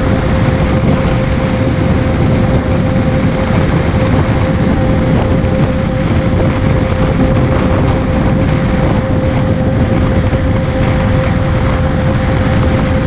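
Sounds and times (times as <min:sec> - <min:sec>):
engine drone: 0:00.0 - 0:13.0
wind noise on microphone: 0:00.0 - 0:13.0.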